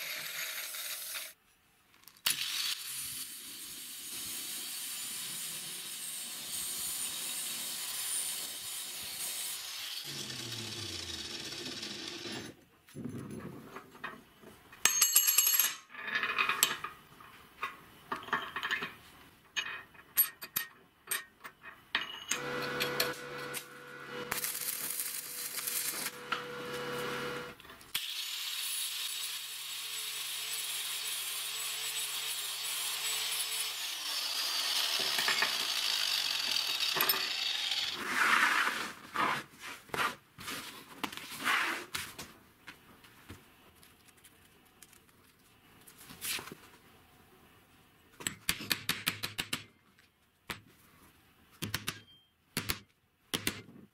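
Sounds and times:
angle grinder grinding steel: 0:03.3 - 0:12.5, 0:22.3 - 0:38.3
steel parts clinking: 0:18.1 - 0:23.6
machine running: 0:25.8 - 0:27.6.

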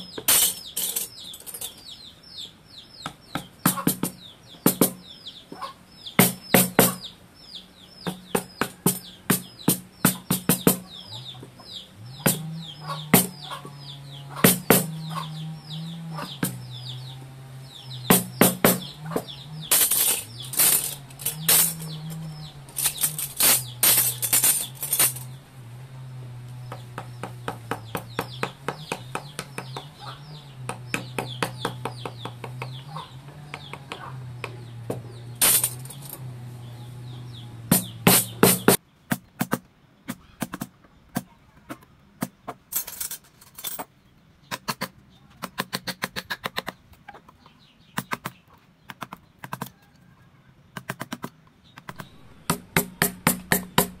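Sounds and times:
hammer striking chisel into wood: 0:03.0 - 0:05.1, 0:06.2 - 0:07.0, 0:08.0 - 0:10.8, 0:12.2 - 0:13.4, 0:14.4 - 0:15.1, 0:16.2 - 0:16.7, 0:18.0 - 0:20.8, 0:26.7 - 0:30.0, 0:30.6 - 0:32.9, 0:33.5 - 0:35.1, 0:37.7 - 0:38.8, 0:51.9 - 0:54.0.

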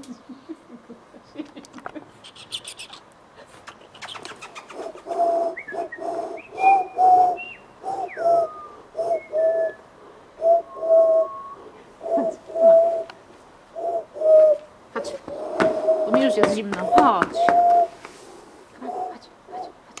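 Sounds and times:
dove cooing: 0:02.1 - 0:19.9
high bird notes and whistles: 0:05.6 - 0:09.8, 0:10.4 - 0:11.6, 0:16.0 - 0:18.0.

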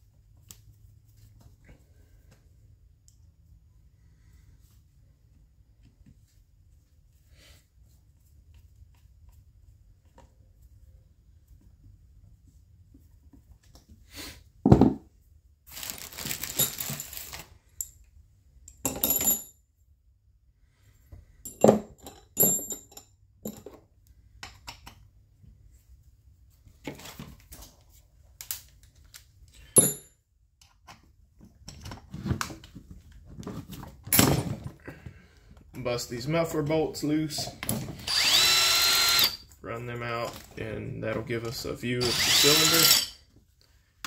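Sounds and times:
tools knocking and clinking on workbench: 0:14.7 - 0:15.0, 0:18.7 - 0:19.6, 0:21.4 - 0:23.8, 0:29.7 - 0:31.0.

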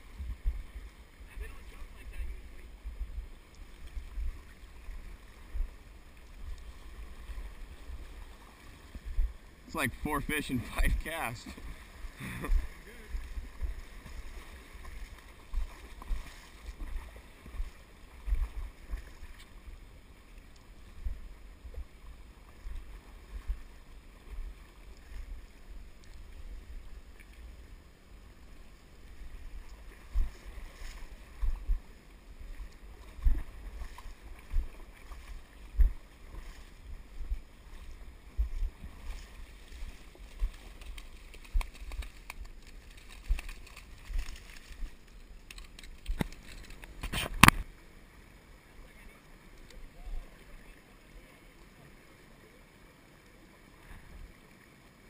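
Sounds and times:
faint river water hiss: 0:00.0 - 0:55.0
wind and handling bumps on camera: 0:35.7 - 0:36.6, 0:38.4 - 0:47.7.

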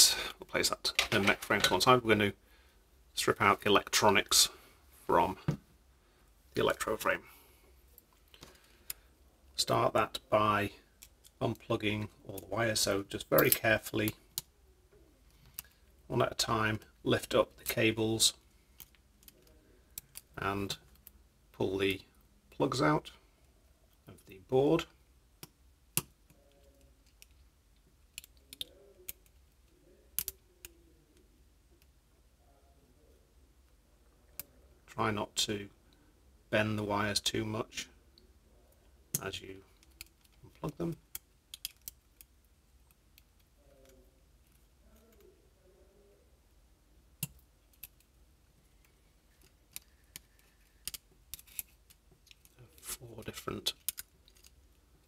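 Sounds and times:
small clicks and taps: 0:39.1 - 0:45.3.

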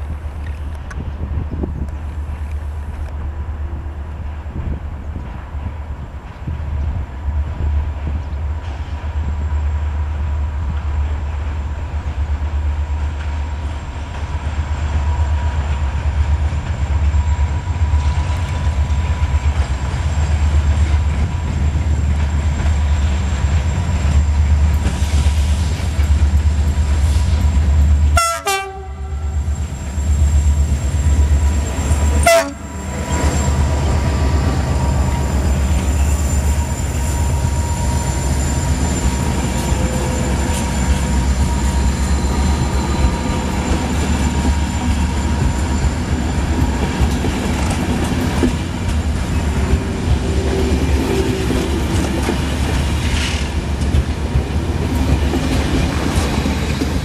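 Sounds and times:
locomotive engine rumbling: 0:00.0 - 0:57.0
train horn blasts: 0:28.1 - 0:29.6, 0:31.8 - 0:33.4
wheels on rails: 0:29.2 - 0:57.0.

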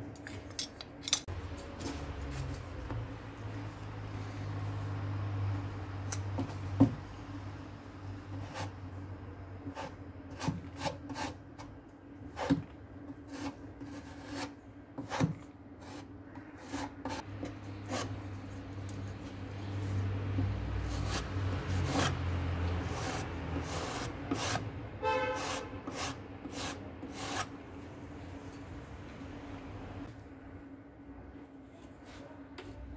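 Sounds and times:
putty knife scraping wood: 0:09.6 - 0:11.7, 0:12.3 - 0:18.3, 0:20.4 - 0:22.2, 0:22.8 - 0:24.7, 0:25.3 - 0:27.5.

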